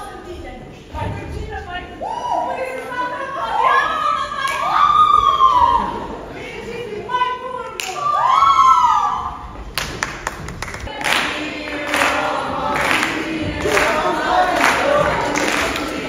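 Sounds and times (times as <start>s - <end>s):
rhythmic hand clapping: 9.7s - 16.0s
actors singing together: 10.8s - 16.0s.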